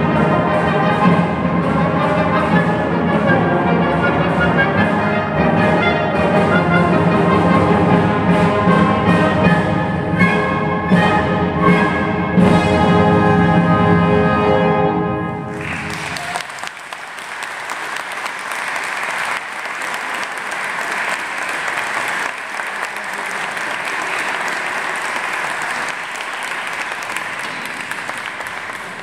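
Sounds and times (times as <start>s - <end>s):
audience applauding: 15.5s - 29.0s.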